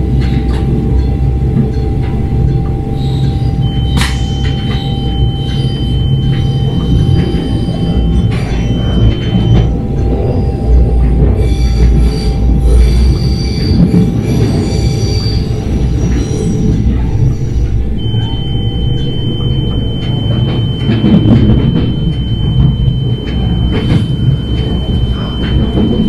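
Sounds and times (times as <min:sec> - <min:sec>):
steady high whine: 0:00.0 - 0:26.0
train ride rumble: 0:00.0 - 0:26.0
wheel squeal: 0:02.9 - 0:26.0.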